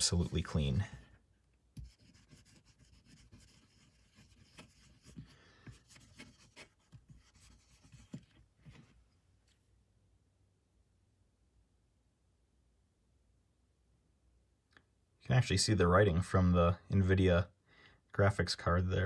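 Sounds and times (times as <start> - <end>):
wipe scrubbing metal plates: 0.0 - 1.0.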